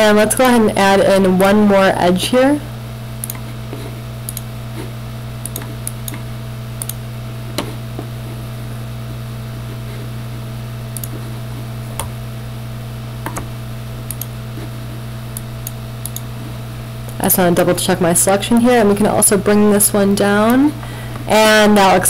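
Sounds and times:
low electrical hum: 0:00.0 - 0:22.0
computer mouse clicks: 0:04.3 - 0:04.5, 0:05.4 - 0:06.2, 0:06.8 - 0:07.0, 0:11.0 - 0:11.2, 0:14.1 - 0:14.3, 0:15.4 - 0:16.3.

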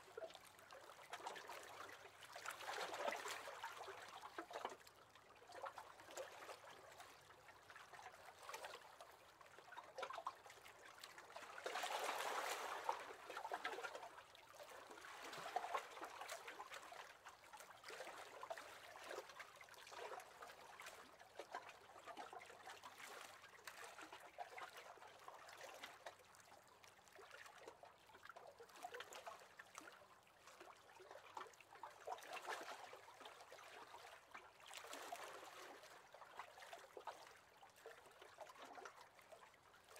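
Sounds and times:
small waves lapping: 0:11.0 - 0:14.1.

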